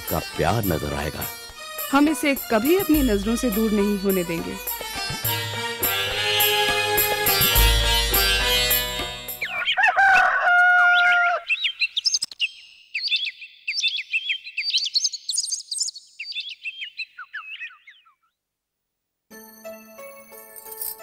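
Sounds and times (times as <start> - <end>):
music: 0.0 - 9.6, 19.3 - 21.0
rooster crowing: 9.5 - 11.5
small birds chirping: 10.9 - 18.4.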